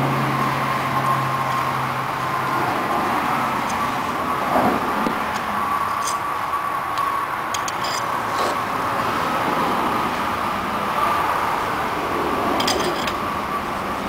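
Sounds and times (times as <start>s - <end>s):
metal clicks and clinks: 5.3s - 6.2s, 7.5s - 8.1s, 12.6s - 13.2s.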